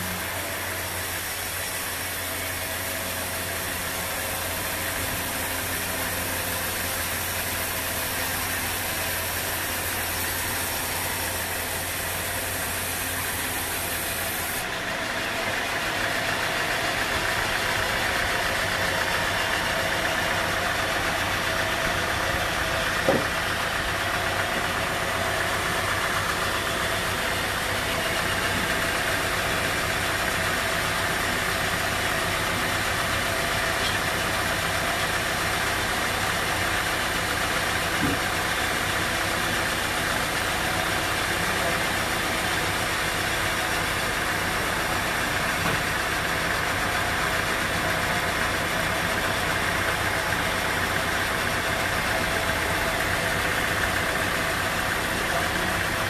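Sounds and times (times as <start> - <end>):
band saw cutting log: 0.0 - 56.0
sharp knock: 23.0 - 23.4.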